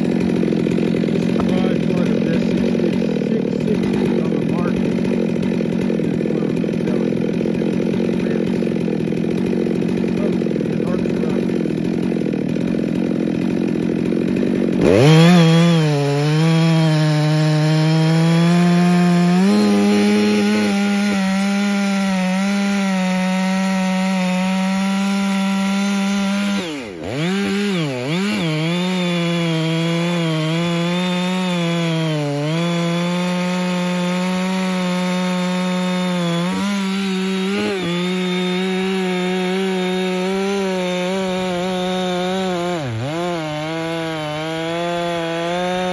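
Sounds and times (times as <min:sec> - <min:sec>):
chainsaw cutting log: 0:00.0 - 0:45.9.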